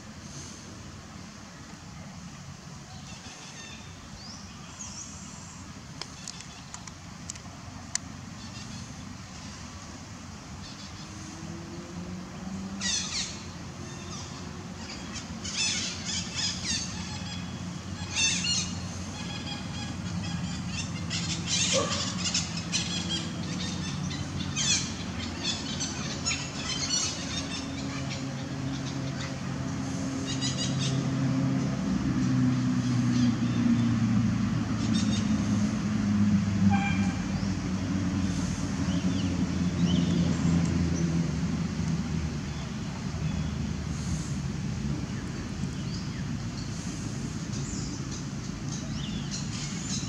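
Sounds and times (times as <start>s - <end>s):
low engine hum: 0.0s - 50.0s
birds chirping: 10.5s - 35.8s, 36.7s - 41.6s, 42.3s - 50.0s.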